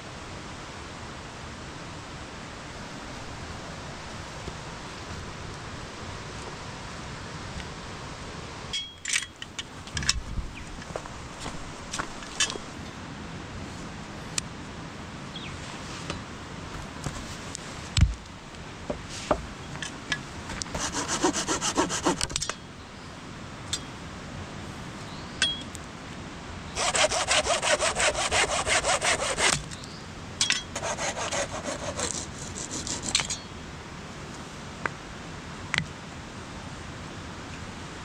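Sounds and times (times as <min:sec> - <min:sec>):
hand saw cutting wood: 0:20.6 - 0:22.4, 0:26.8 - 0:29.6, 0:30.7 - 0:33.4.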